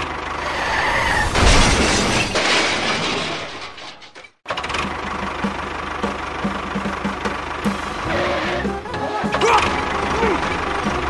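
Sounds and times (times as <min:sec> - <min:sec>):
toy crash with shattering: 0:01.2 - 0:04.4
engine chugging: 0:04.5 - 0:11.0.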